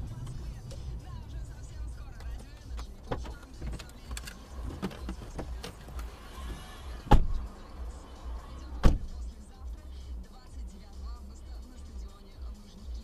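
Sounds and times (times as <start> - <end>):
moving car rumble: 0.0 - 13.0.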